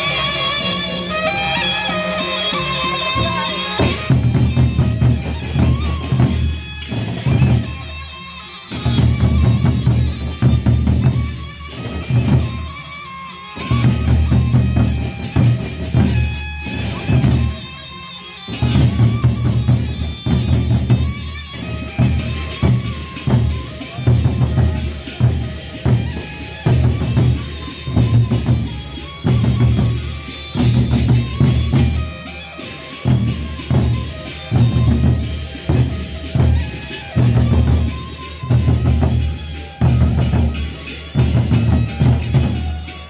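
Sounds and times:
large barrel drums beaten: 1.9s - 7.7s, 18.5s - 32.1s.

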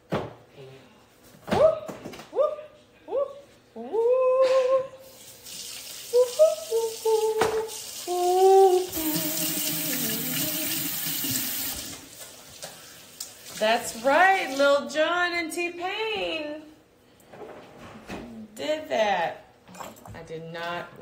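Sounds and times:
running tap water: 5.0s - 14.6s.

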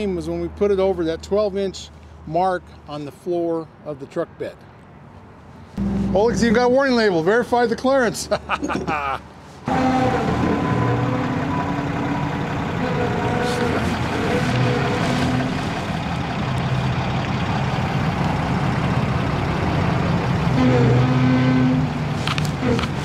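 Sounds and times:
truck engine running low speed: 5.8s - 7.0s, 9.7s - 23.0s.

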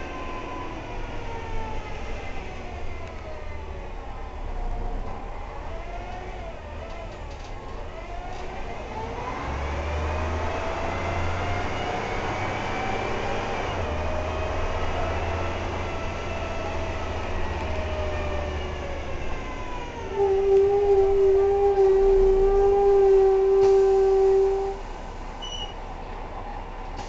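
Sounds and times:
bus engine rumble and whine: 0.0s - 27.0s
loud steady tone: 20.0s - 25.8s.

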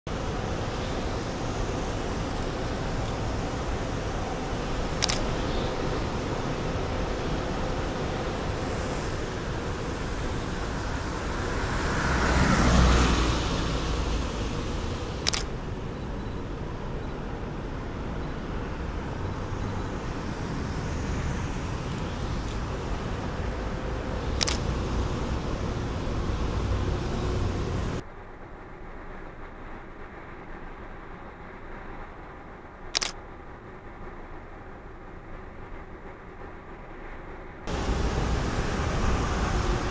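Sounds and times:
traffic noise: 0.0s - 39.9s
vehicle passing: 0.1s - 15.4s, 17.6s - 28.0s, 37.7s - 39.9s
sharp clicks: 5.0s - 5.5s, 15.2s - 15.6s, 24.4s - 24.7s, 32.9s - 33.2s.

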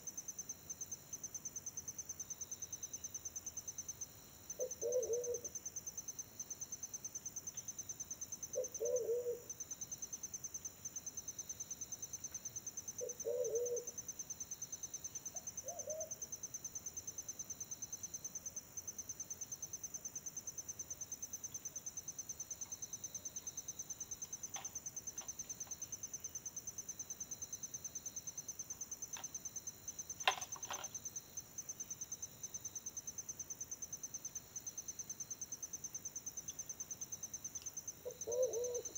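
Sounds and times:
insect trill: 0.0s - 38.9s
pigeon cooing: 4.6s - 5.5s, 8.6s - 9.5s, 13.0s - 13.9s, 15.6s - 16.1s, 38.0s - 38.9s.

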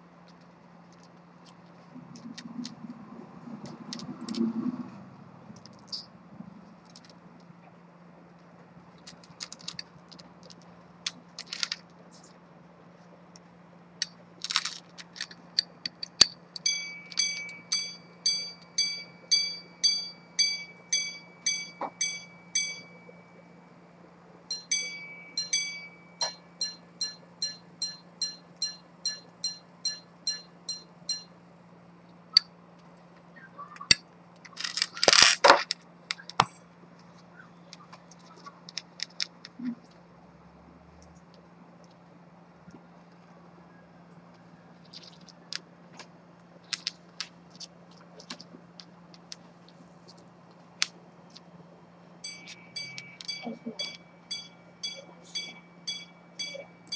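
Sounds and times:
watch being handled rustle: 9.0s - 12.4s, 14.4s - 17.7s, 34.4s - 36.4s
pocket watch chiming on gongs: 16.6s - 23.6s, 24.5s - 31.3s, 52.2s - 56.9s.

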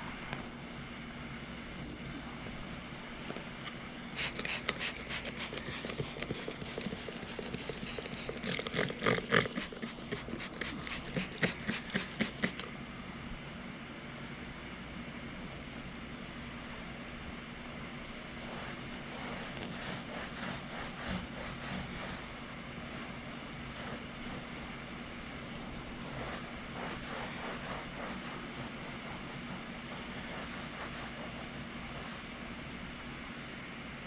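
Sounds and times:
carpet cleaner hum: 0.0s - 13.3s, 14.1s - 34.0s
spray bottle squirts: 4.2s - 12.7s.

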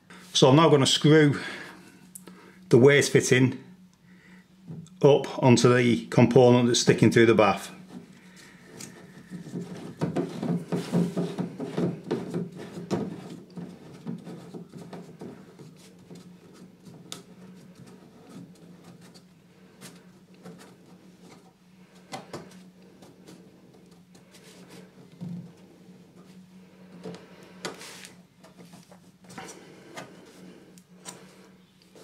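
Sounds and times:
plastic fitting rubbing and clicking: 7.8s - 21.5s.

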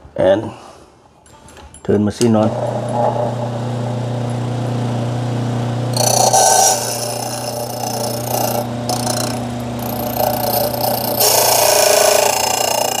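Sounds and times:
electric motor humming: 2.5s - 13.0s
cutter wheel grinding key: 6.0s - 13.0s.

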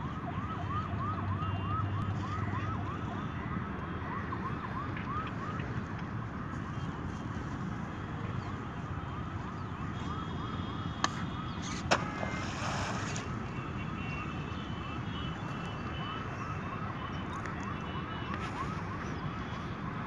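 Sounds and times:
steady outdoor rumble: 0.0s - 20.0s
bag landing in water: 11.9s - 13.4s.

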